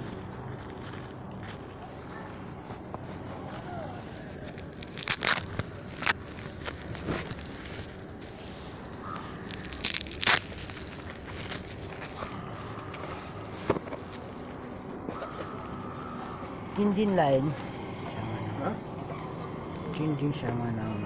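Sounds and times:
bubble wrap crinkling: 0.0s - 15.8s.

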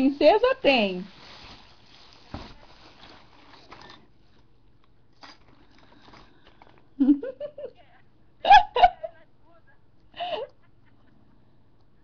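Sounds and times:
room hiss: 0.0s - 4.4s.

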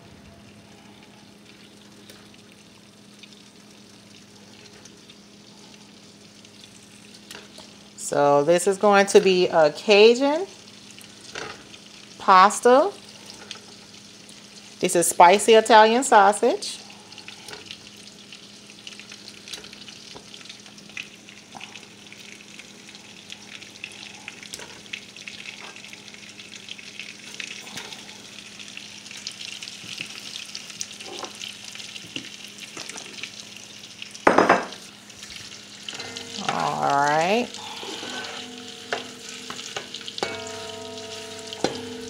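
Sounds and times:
sausage sizzling in pan: 0.0s - 42.0s
spatula pushing food in pan: 35.2s - 42.0s.

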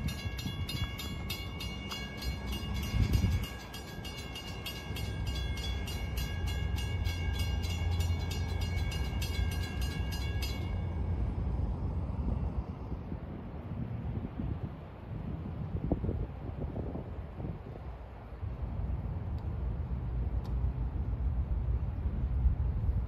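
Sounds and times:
crossing warning bell ringing: 0.0s - 11.6s
wind rumble on microphone: 0.0s - 23.0s.

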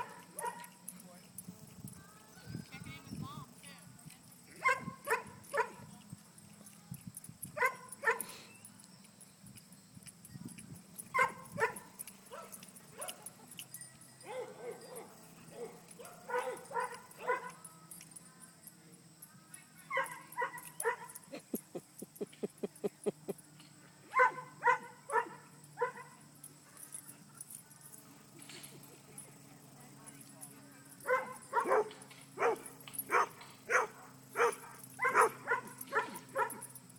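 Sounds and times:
dog barking: 0.0s - 0.8s, 4.6s - 5.8s, 7.6s - 8.3s, 11.2s - 13.3s, 14.2s - 17.6s, 24.1s - 26.2s, 31.0s - 36.7s.

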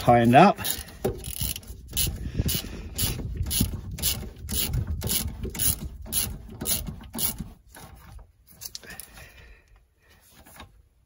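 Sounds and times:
socket ratchet clicking: 0.6s - 7.3s.

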